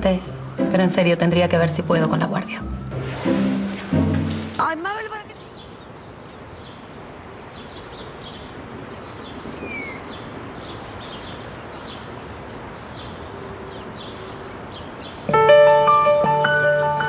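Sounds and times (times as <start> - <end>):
background hiss: 0.0 - 17.0
birds chirping: 0.0 - 17.0.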